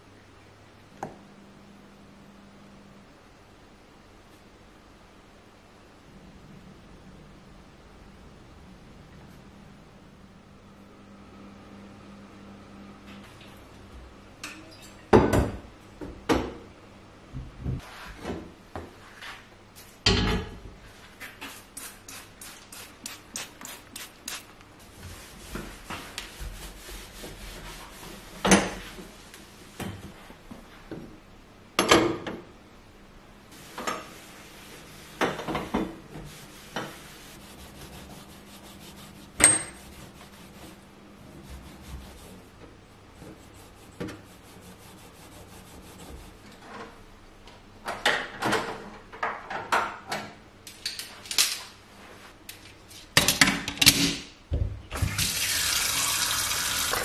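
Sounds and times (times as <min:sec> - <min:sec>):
rubbing: 0:33.6 - 0:46.5.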